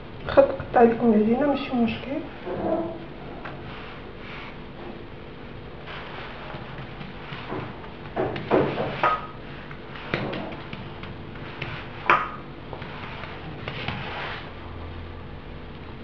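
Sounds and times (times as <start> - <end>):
hands patting dough on countertop: 5.8 - 14.5.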